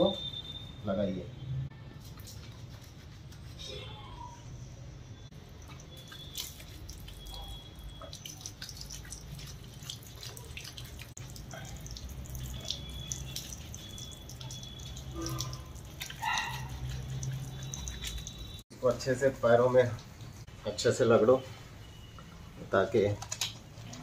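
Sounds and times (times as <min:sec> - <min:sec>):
water dripping on concrete floor: 0:05.6 - 0:20.4.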